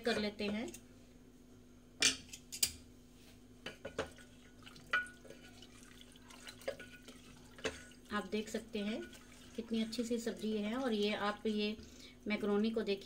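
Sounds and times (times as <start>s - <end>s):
metal ladle clanking in a pot: 4.9s - 5.6s.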